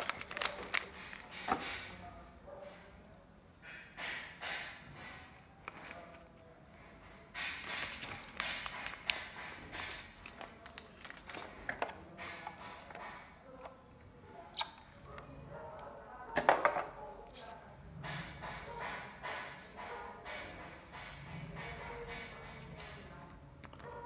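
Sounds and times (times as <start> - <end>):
plastic packaging crinkling: 0.0 - 1.3, 7.8 - 11.6.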